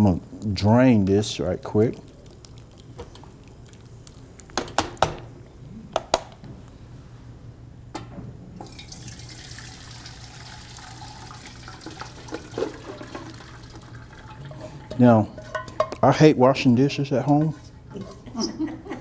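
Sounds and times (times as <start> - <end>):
water pouring through a strainer: 8.6 - 14.8
metal pans clanking: 12.2 - 13.4, 14.2 - 18.4.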